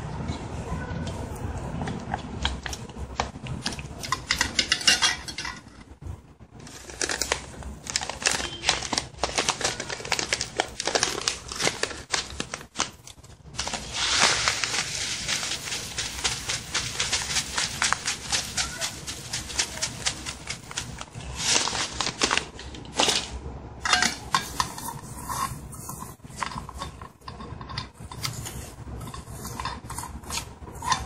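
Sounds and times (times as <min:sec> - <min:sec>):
plastic bag crinkling: 0:06.6 - 0:27.0
spatula scraping metal bowl: 0:23.9 - 0:31.0.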